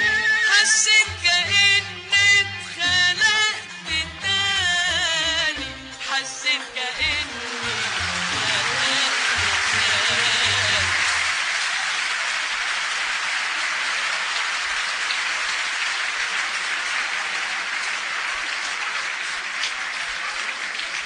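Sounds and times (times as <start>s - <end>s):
audience applauding: 6.9s - 21.0s.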